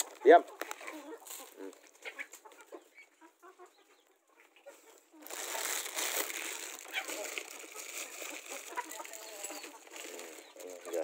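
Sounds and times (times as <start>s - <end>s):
rustling crinkling: 5.2s - 11.0s.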